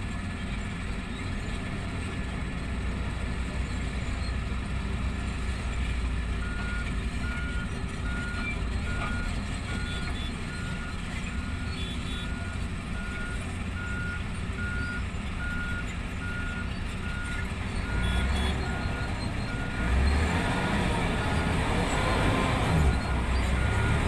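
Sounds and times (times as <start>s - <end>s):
drill rig engine rumble: 0.1s - 24.0s
back-up alarm beeping: 6.4s - 21.6s.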